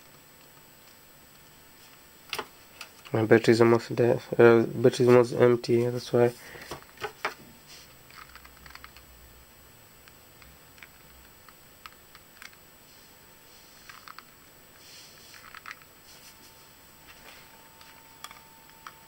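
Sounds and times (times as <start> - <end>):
faint steady high tone: 16.0 - 19.0.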